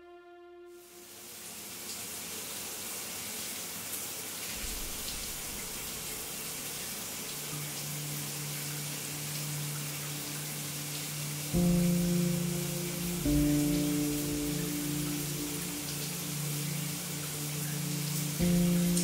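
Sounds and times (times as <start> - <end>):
low steady drone: 7.5 - 19.0
shower water spraying: 10.9 - 19.0.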